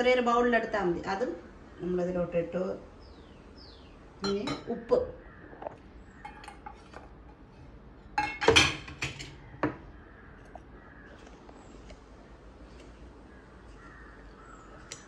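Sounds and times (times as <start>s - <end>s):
spoon clinking against steel dish: 8.2s - 9.3s.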